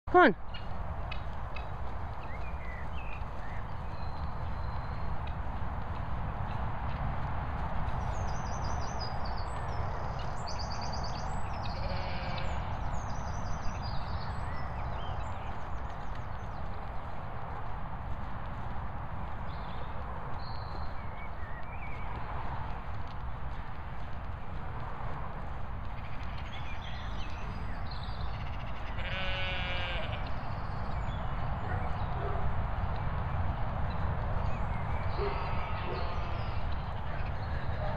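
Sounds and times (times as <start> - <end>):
wind rumble on microphone: 0.4 - 37.9
drawn-out animal call: 11.5 - 12.8, 28.2 - 30.4, 35.2 - 37.9.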